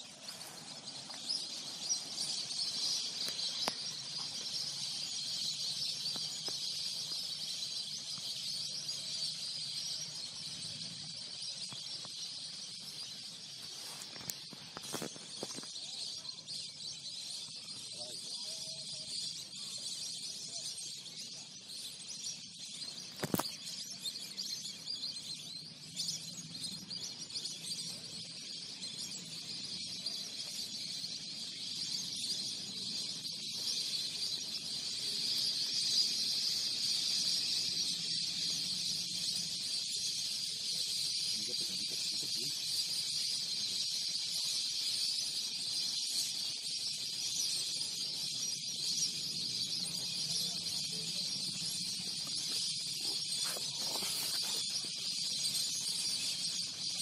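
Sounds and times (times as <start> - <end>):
insects shrilling: 49.9 - 57.0.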